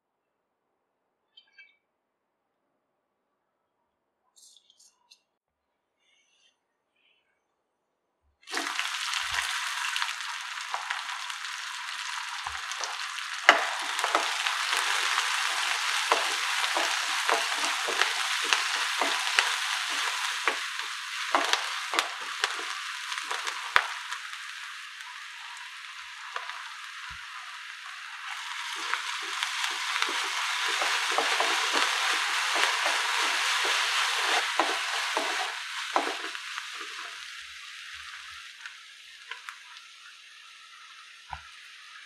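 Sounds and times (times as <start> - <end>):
onions sizzling in hot oil: 8.5 - 42.0
spatula knocking and scraping pan: 10.7 - 24.2, 28.2 - 37.2.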